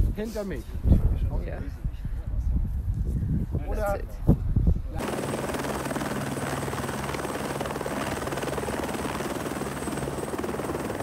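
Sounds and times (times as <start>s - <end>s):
helicopter engine hum: 5.0s - 11.0s
helicopter rotor beat: 5.0s - 11.0s.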